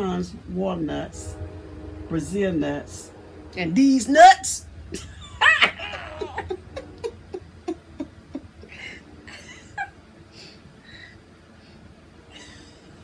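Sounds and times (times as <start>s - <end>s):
women laughing: 5.4s - 10.0s.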